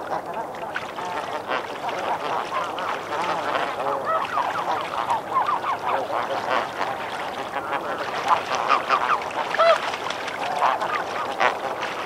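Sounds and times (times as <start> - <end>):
goose splashing in water: 0.0 - 12.0
geese honking: 1.1 - 9.9.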